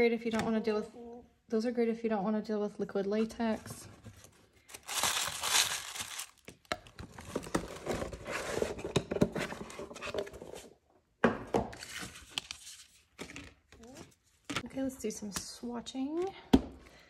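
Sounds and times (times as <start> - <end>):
tissue paper crinkling: 4.2 - 6.6.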